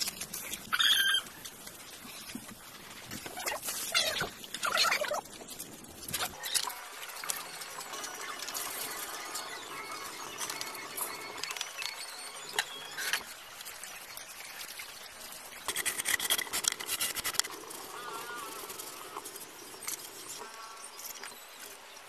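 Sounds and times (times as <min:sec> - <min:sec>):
trowel scraping wet cement: 0:15.6 - 0:17.5.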